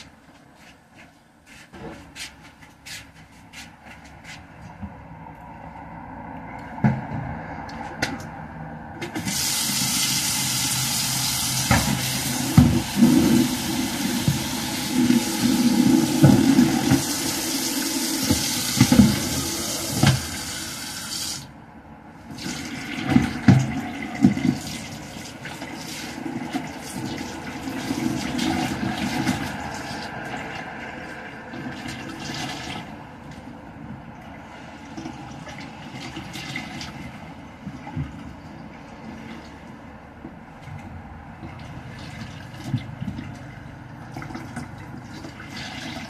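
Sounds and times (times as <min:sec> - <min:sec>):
water running: 0:09.2 - 0:21.4.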